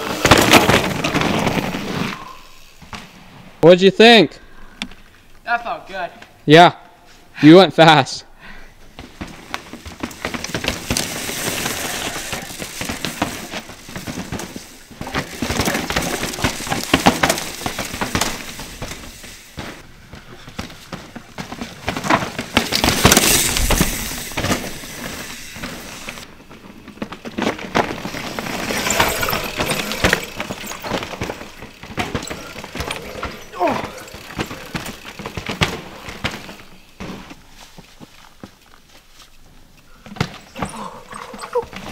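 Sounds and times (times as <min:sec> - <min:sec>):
bike tyres crunching on dirt: 0:00.0 - 0:03.6, 0:08.7 - 0:41.9
bike clicks and rattles: 0:08.9 - 0:41.9.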